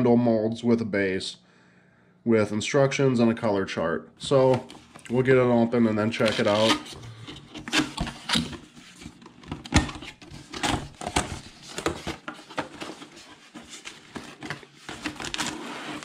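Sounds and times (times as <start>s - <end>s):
cardboard scraping and rustling: 5.9s - 16.0s.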